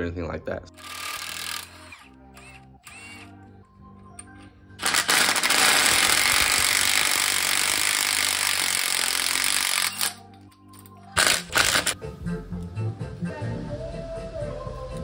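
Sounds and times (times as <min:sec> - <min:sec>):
impact wrench hammering: 0:04.8 - 0:10.2.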